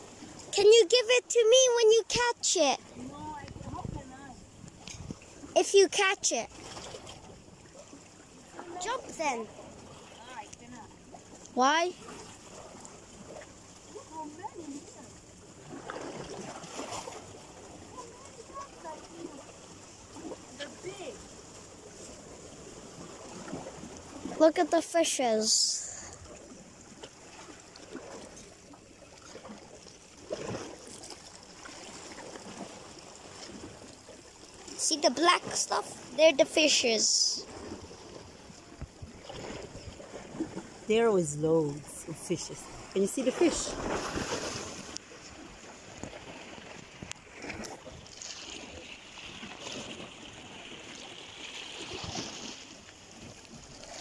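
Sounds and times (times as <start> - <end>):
waves lapping against rocks: 0.0 - 54.0.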